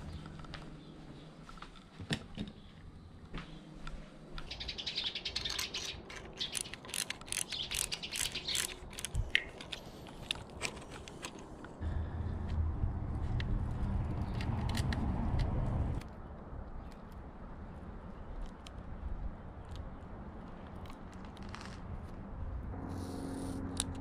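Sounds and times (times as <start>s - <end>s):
hand tool metal clicks: 5.4s - 11.5s.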